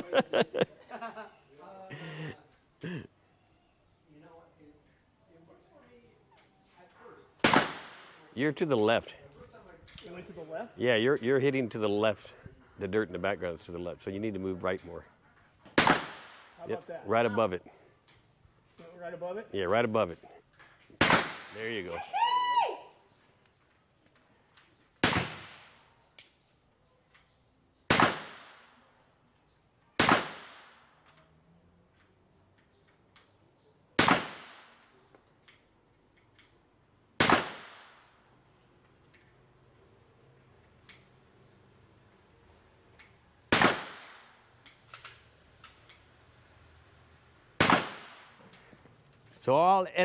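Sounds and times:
gunshots: 0:07.4 - 0:08.2, 0:15.8 - 0:16.6, 0:21.0 - 0:21.8, 0:25.0 - 0:25.8, 0:27.9 - 0:28.7, 0:30.0 - 0:30.8, 0:34.0 - 0:34.8, 0:37.2 - 0:38.0, 0:43.5 - 0:44.4, 0:47.6 - 0:48.4.

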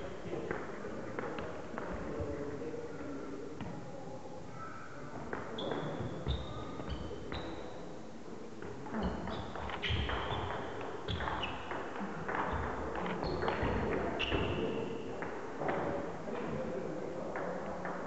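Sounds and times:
shoe squeaks: 0:05.6 - 0:07.7.

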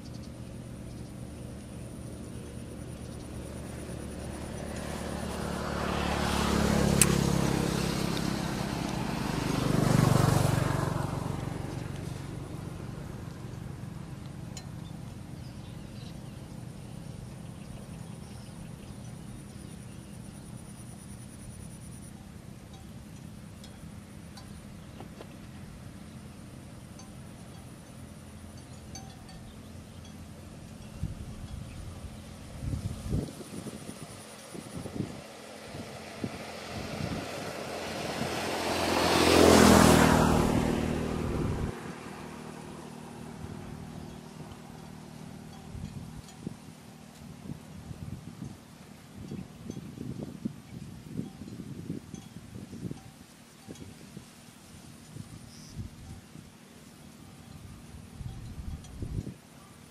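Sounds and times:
vehicle engine passing by: 0:00.0 - 0:51.2
high thin insect trill: 0:11.4 - 0:35.2.

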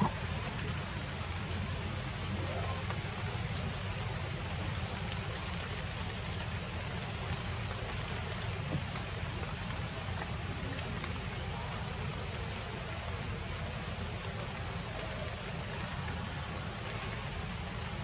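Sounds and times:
rain or running water: 0:00.0 - 0:18.0.

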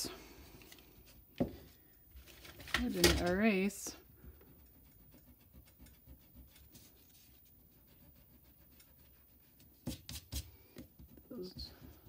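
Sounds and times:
eraser rubbing on paper: 0:04.3 - 0:10.6.

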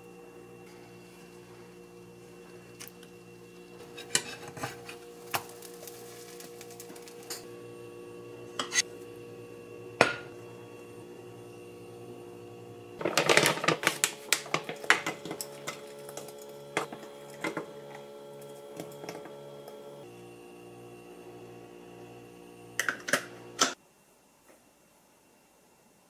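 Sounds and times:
steady hum: 0:00.0 - 0:25.6
metal utensils clinking on ceramic: 0:03.9 - 0:05.0.

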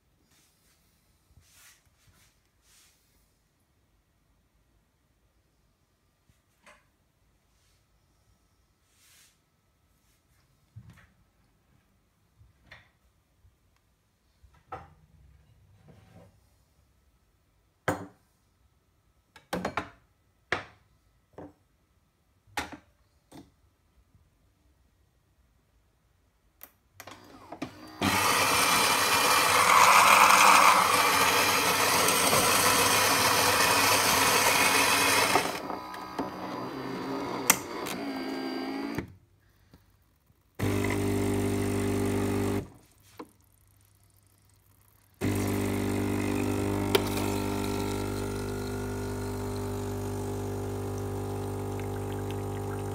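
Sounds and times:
loud coffee grinding: 0:28.0 - 0:38.9, 0:40.6 - 0:42.7, 0:45.2 - 0:52.9.

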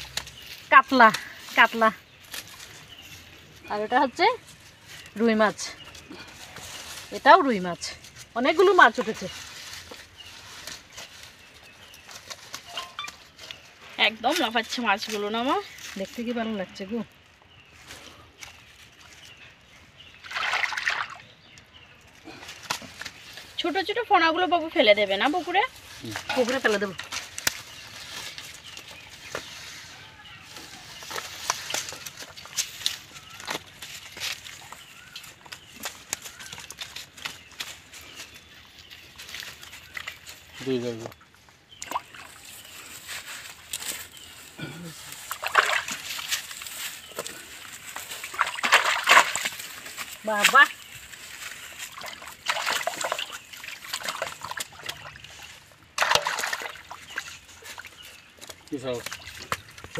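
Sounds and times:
hands handling net: 0:04.4 - 0:14.5, 0:25.6 - 0:59.9
fish flopping on dry leaves: 0:05.8 - 0:13.8, 0:25.6 - 0:40.6, 0:41.7 - 0:59.9
fish splashing in water: 0:20.2 - 0:21.4, 0:45.2 - 0:46.6, 0:48.0 - 0:58.2.

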